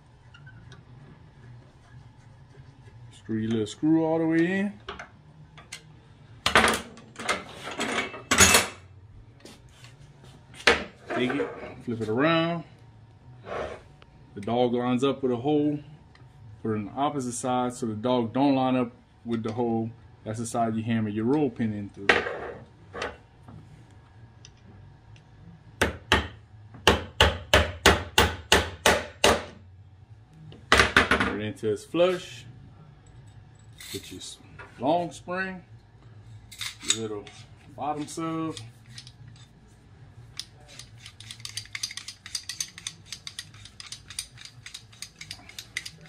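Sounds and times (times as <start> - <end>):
metallic clicking and rattling: 40.3 - 46.0.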